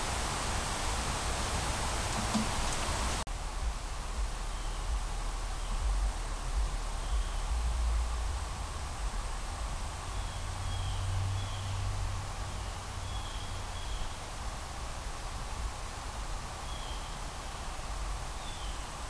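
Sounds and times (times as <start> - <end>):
insect drone: 0.1 - 19.0
low rumble: 3.3 - 12.3
faint bird chirps: 4.4 - 6.0, 6.9 - 8.0.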